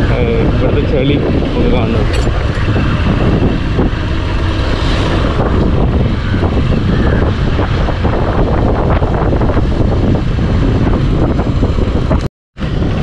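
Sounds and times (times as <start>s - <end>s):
motorcycle engine running: 0.0s - 13.0s
wind noise on microphone: 0.0s - 13.0s.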